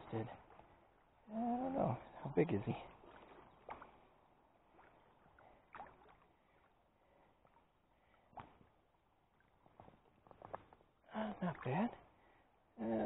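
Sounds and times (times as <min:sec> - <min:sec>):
faint water: 0:00.0 - 0:13.0.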